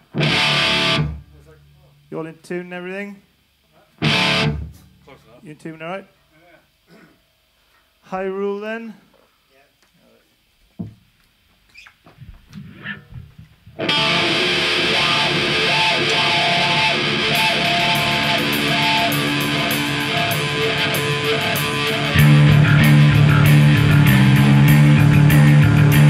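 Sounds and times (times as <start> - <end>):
heavy rock band playing: 0.0 - 1.2, 4.0 - 4.7, 13.8 - 26.0
distorted electric guitar riff: 0.0 - 1.3, 4.0 - 4.8, 12.6 - 26.0.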